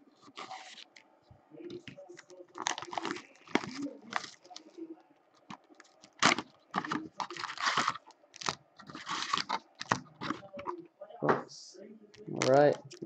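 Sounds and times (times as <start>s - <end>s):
foil packs crinkling: 0.2s - 1.0s, 2.2s - 4.8s, 5.4s - 10.7s.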